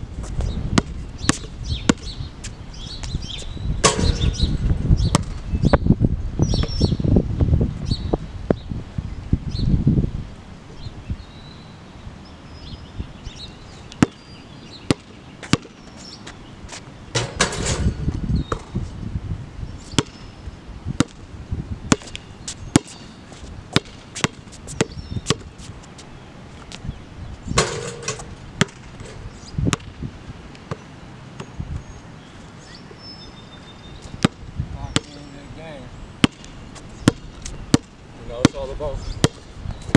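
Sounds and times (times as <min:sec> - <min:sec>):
birds chirping faintly: 0:00.3 - 0:07.2, 0:07.8 - 0:18.9, 0:19.5 - 0:20.7, 0:21.9 - 0:39.9
basketball bouncing on hard court: 0:00.8 - 0:02.1, 0:05.1 - 0:05.4, 0:14.0 - 0:14.2, 0:14.9 - 0:15.8, 0:20.0 - 0:20.2, 0:21.0 - 0:21.2, 0:21.9 - 0:22.2, 0:22.8 - 0:23.0, 0:23.7 - 0:25.5, 0:27.6 - 0:29.0, 0:29.7 - 0:30.0, 0:34.2 - 0:35.2, 0:36.2 - 0:39.4.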